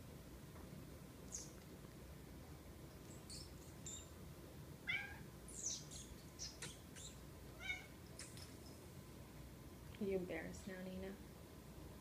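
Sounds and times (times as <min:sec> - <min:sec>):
cat meowing: 0:04.9 - 0:05.3, 0:07.6 - 0:08.0.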